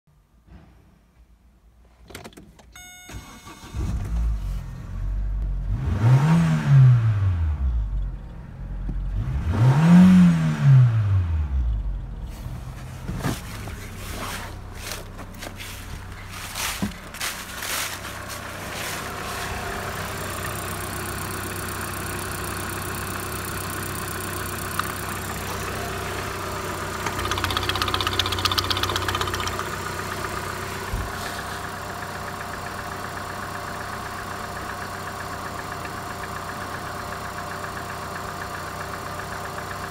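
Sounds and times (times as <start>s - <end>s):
car engine starting and revving: 3.2s - 39.9s
car engine idling: 11.2s - 39.9s.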